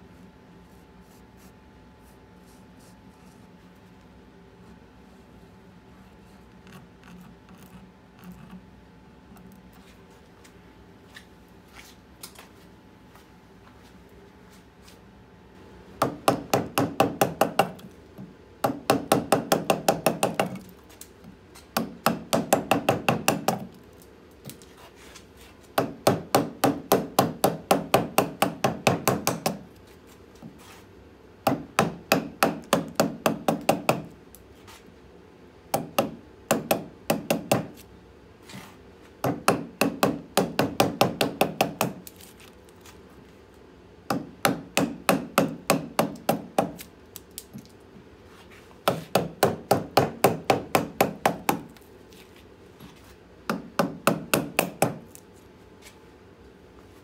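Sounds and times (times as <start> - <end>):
mallet striking carving gouge: 16.0 - 17.8, 18.6 - 20.7, 21.7 - 23.7, 25.8 - 29.7, 31.5 - 34.1, 35.7 - 37.8, 39.2 - 42.1, 44.1 - 46.9, 48.8 - 51.8, 53.5 - 55.2.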